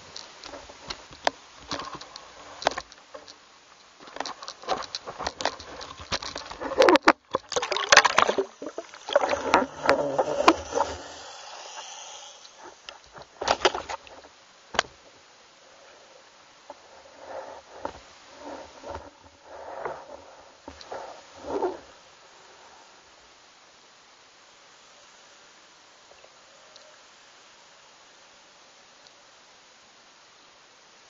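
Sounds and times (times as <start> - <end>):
water splashing: 4.1 - 14.3.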